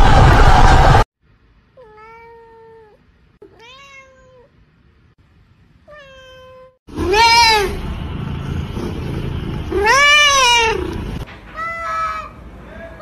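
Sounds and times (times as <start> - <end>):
loud burst of noise: 0.0 - 1.1
cat meowing: 1.8 - 4.5, 5.9 - 7.8, 9.7 - 11.0.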